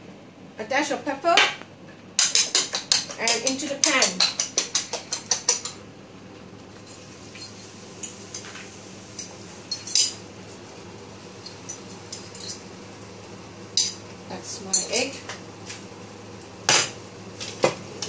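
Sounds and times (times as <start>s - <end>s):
range hood fan humming: 0.0s - 18.0s.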